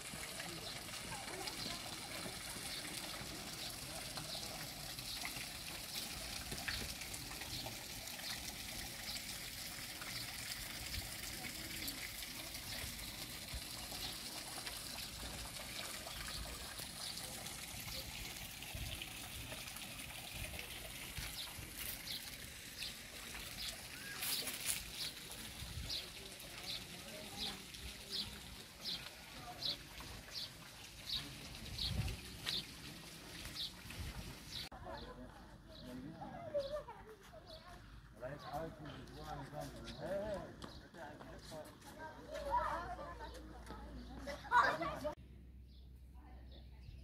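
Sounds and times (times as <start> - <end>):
water trickling in a stream: 0.0 - 36.2.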